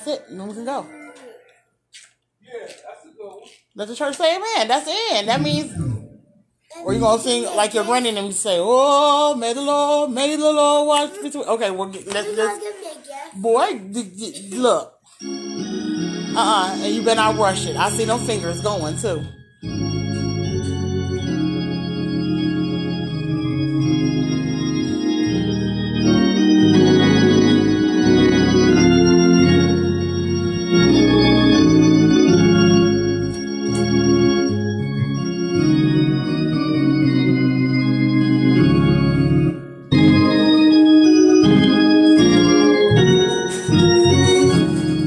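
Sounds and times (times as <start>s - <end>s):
organ chords and bass line: 5.3s - 7.6s, 15.2s - 45.0s.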